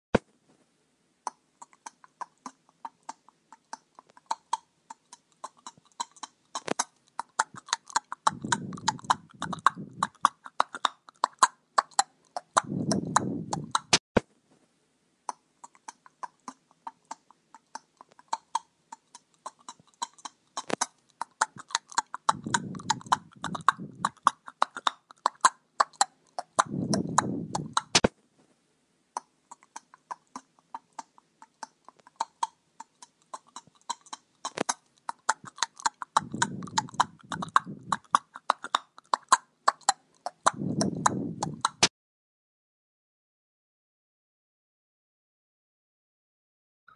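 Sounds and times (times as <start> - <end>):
horse snorting: 5.5 - 10.8, 19.7 - 28.1, 33.6 - 38.2.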